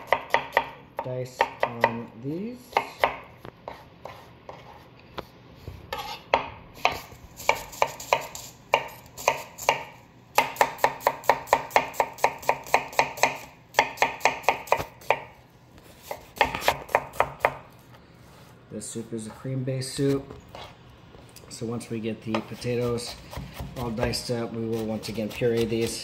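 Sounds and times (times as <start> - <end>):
knife chopping on cutting board: 0.0 - 2.1, 2.7 - 4.8, 5.9 - 17.7, 22.3 - 26.0.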